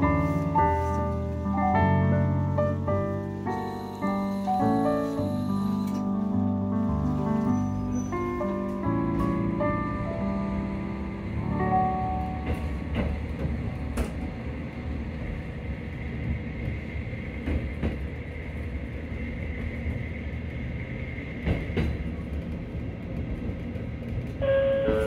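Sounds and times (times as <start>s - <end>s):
train rumble inside carriage: 0.0s - 25.0s
wheels clacking over rail joints: 12.2s - 14.6s.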